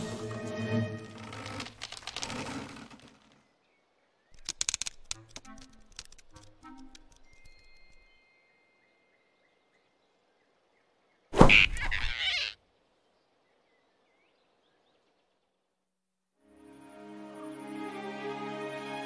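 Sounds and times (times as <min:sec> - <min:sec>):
soft music: 0:00.0 - 0:01.6, 0:05.0 - 0:09.6, 0:16.4 - 0:19.0.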